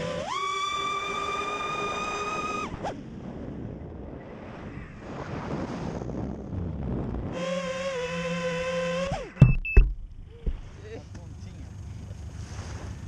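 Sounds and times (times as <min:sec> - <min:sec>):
high whine of electric motors: 0:00.0 - 0:03.0, 0:07.3 - 0:09.4
wind rushing over microphone: 0:01.0 - 0:07.4.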